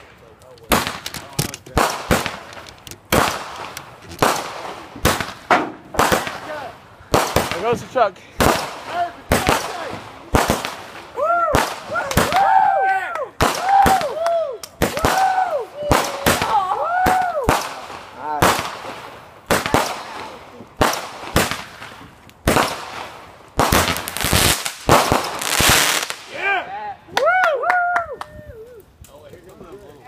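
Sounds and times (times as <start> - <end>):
fireworks banging: 0.0 - 12.5, 13.4 - 26.4
fireworks whistling: 14.8 - 26.4.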